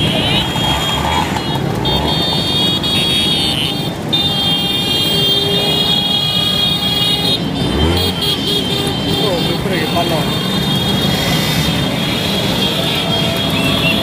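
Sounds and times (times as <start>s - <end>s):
scooter engines passing: 0.0s - 14.0s.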